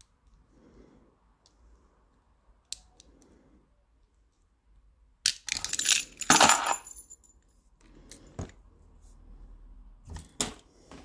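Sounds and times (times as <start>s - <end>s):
clicks of lock and tools: 5.2s - 7.5s.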